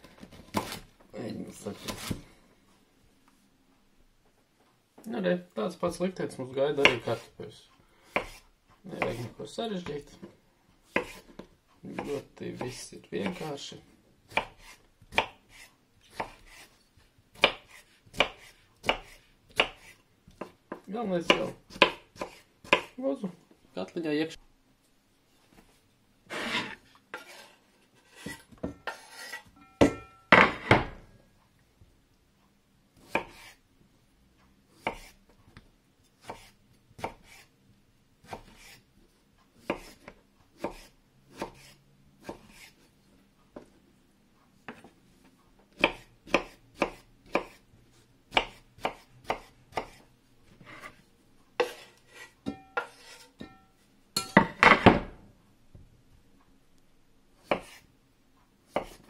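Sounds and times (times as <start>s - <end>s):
knife chopping on wooden board: 0.3s - 0.8s, 8.1s - 8.4s, 10.9s - 13.5s, 14.3s - 16.7s, 17.3s - 23.0s, 33.0s - 33.5s, 34.8s - 35.2s, 36.2s - 37.4s, 38.2s - 38.8s, 39.6s - 42.8s, 45.7s - 47.6s, 48.3s - 50.0s, 51.6s - 53.6s, 57.4s - 57.8s, 58.7s - 59.0s.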